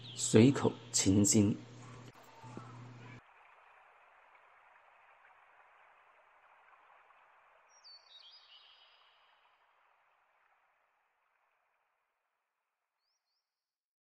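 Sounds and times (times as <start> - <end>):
bird chirp: 0.0 - 3.2, 7.6 - 9.6
faint steady hiss: 0.0 - 10.3.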